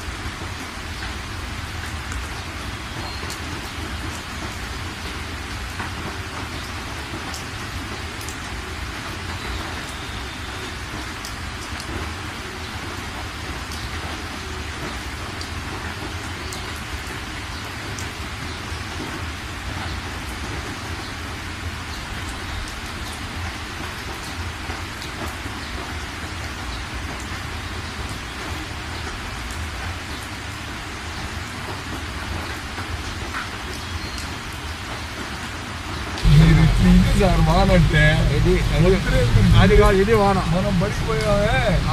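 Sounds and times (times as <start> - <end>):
heavy rain on car windshield: 0.0 - 41.9
car rumbling on road: 36.2 - 41.9.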